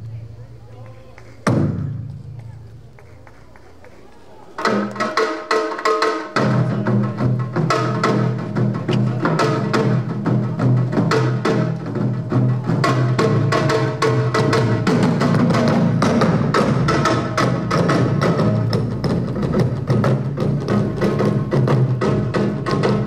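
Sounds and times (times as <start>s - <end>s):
barrel drums fast rhythm: 4.6s - 23.0s.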